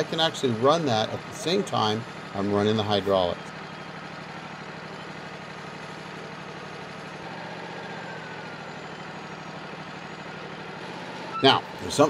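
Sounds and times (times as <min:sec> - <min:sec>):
sawmill engine idling: 0:00.0 - 0:12.0.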